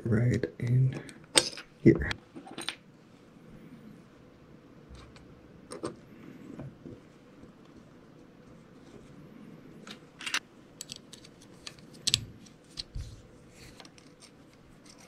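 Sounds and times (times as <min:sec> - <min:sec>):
small parts clicking and tapping: 0:09.9 - 0:12.9.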